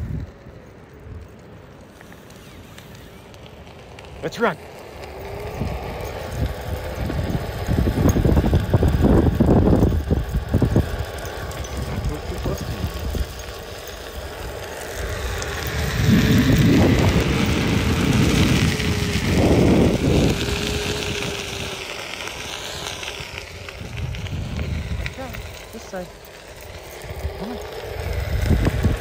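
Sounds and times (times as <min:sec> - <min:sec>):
wind noise on microphone: 0:00.0 - 0:00.4, 0:05.4 - 0:13.5, 0:14.2 - 0:25.8, 0:27.0 - 0:29.0
electric motor whine: 0:01.8 - 0:29.0.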